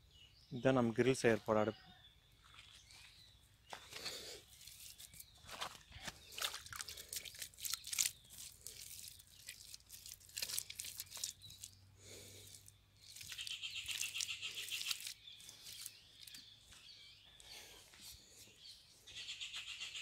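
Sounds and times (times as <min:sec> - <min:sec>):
hands scraping wet mud: 0:03.7 - 0:16.6.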